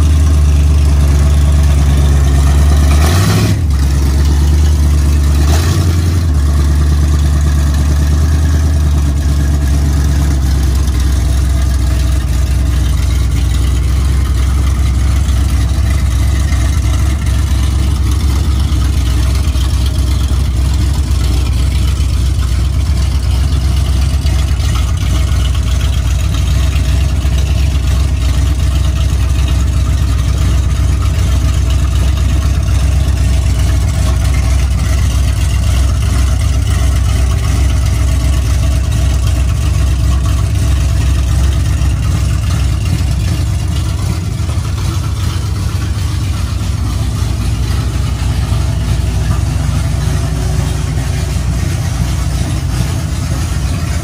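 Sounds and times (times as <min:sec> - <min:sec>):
engine idling: 0:00.0 - 0:54.0.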